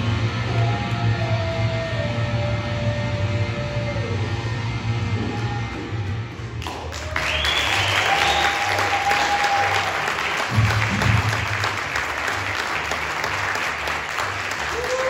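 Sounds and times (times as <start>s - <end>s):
music playing: 0.0s - 15.0s
audience applauding: 6.6s - 15.0s.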